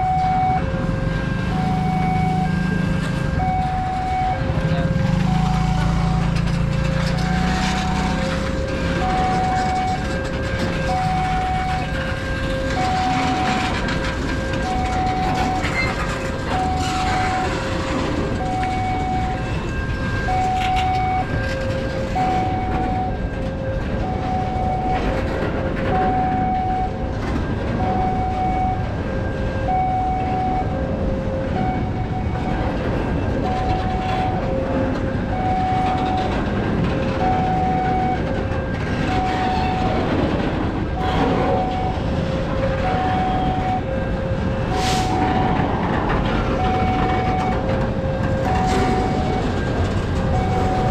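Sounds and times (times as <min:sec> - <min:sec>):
train rumbling over tracks: 0:00.0 - 0:50.9
two-tone crossing alarm: 0:00.0 - 0:50.9.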